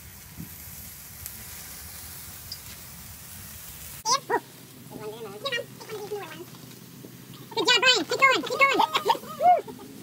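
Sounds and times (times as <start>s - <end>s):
sparkler fizzing hiss: 0.0s - 10.0s
person crying out: 7.6s - 9.9s.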